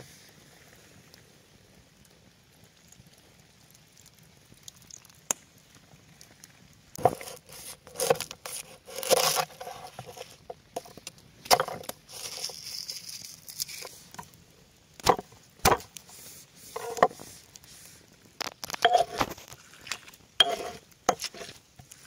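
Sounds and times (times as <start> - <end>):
garlic crackling: 6.9 - 14.4, 15.0 - 22.0.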